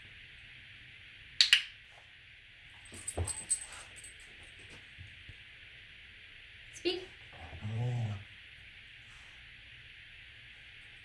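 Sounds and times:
light metallic jingling: 0:02.8 - 0:04.7.

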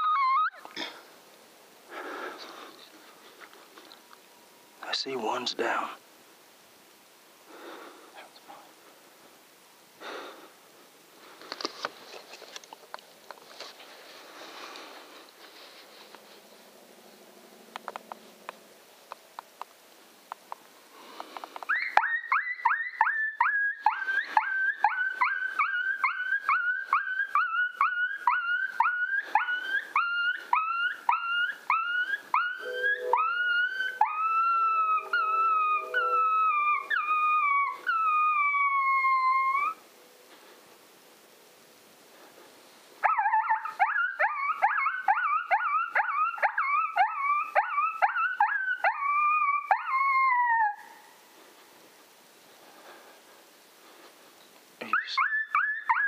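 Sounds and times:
dog yelping in distress: 0:00.0 - 0:00.7, 0:21.7 - 0:39.8, 0:43.0 - 0:51.0, 0:54.9 - 0:56.0.

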